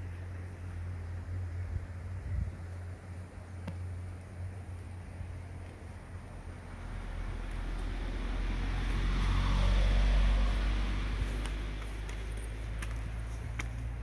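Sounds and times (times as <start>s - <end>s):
motor vehicle passing: 3.8s - 14.0s.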